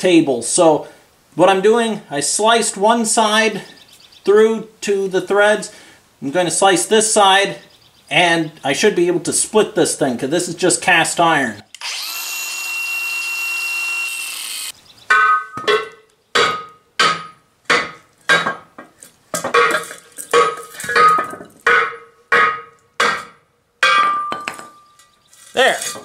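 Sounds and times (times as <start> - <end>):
angle grinder cutting metal: 11.7 - 14.8.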